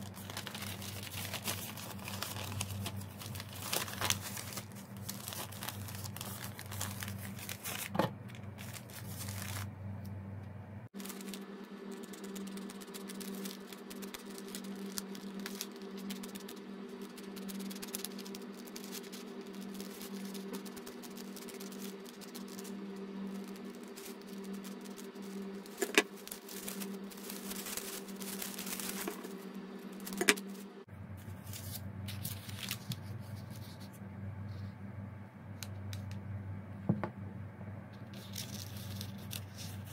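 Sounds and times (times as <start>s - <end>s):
paper rustling: 0.0s - 9.7s, 11.0s - 30.6s, 31.2s - 34.0s, 38.1s - 39.9s
low hum: 0.0s - 39.9s
scissors cutting paper: 11.0s - 29.3s.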